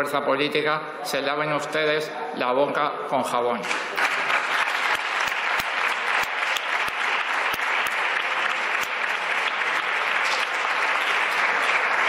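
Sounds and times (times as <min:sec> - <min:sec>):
sharp single claps: 0:03.6 - 0:11.9
group applauding: 0:03.6 - 0:12.0.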